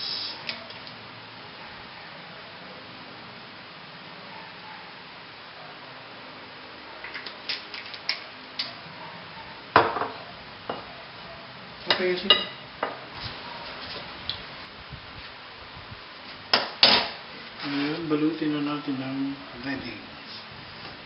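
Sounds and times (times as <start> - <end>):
metal spoon clinking on ceramic plate: 11.9 - 12.6.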